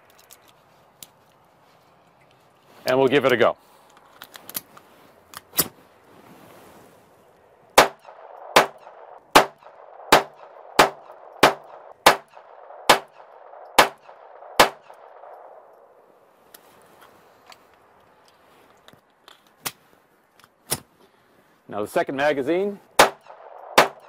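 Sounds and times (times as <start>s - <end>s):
gun handling clicks: 0.0s - 1.4s, 3.2s - 5.7s, 10.4s - 15.9s, 16.5s - 20.9s
pistol shots: 7.8s - 15.6s, 23.0s - 24.0s.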